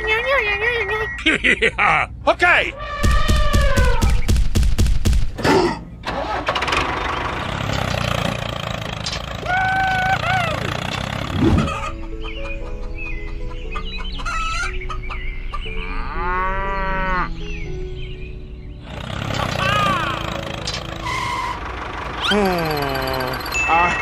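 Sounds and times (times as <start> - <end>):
chicken clucking: 10.0 - 15.8
light background music: 11.4 - 21.7.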